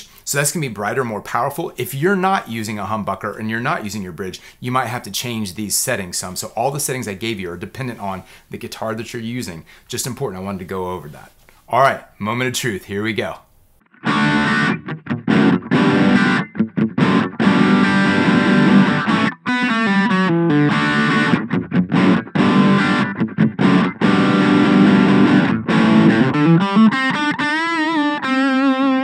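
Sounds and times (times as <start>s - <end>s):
distorted electric guitar: 13.9s - 29.0s.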